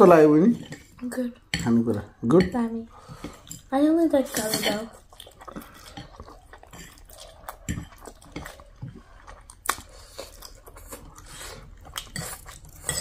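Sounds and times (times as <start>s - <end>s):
slurping and chewing noodles: 4.3s - 13.0s.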